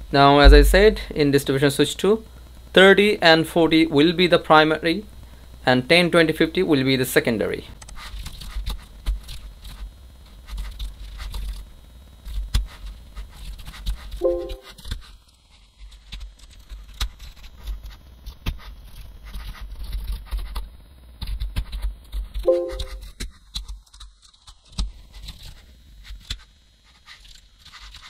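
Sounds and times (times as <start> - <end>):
low thumps on desk: 0.5 - 1.1.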